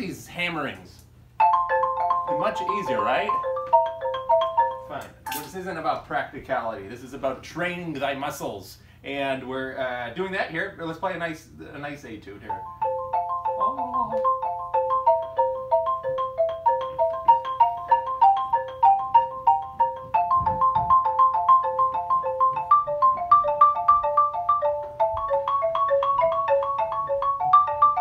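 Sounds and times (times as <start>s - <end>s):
xylophone broken-chord figures: 1.4s - 5.6s, 12.5s - 28.0s.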